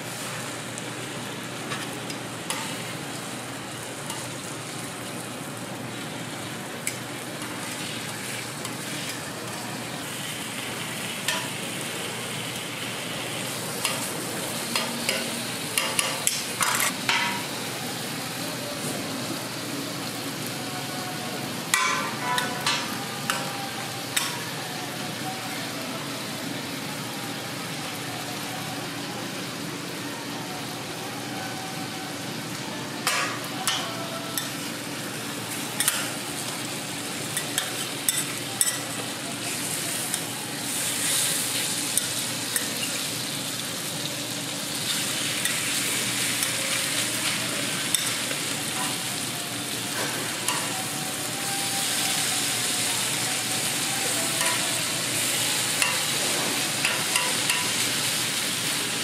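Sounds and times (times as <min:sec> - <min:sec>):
food sizzling on a griddle: 0:00.0 - 0:59.0.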